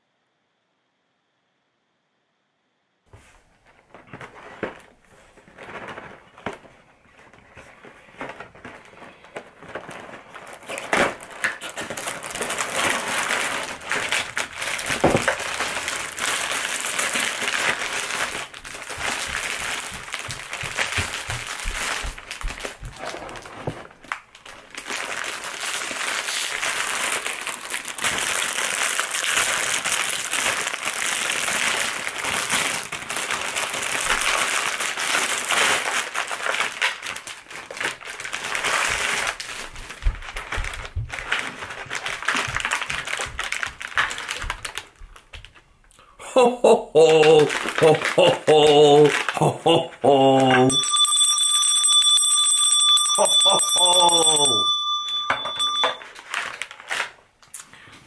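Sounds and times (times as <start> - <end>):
aluminium foil crinkling: 3.6 - 45.7, 47.1 - 50.8, 55.5 - 57.7.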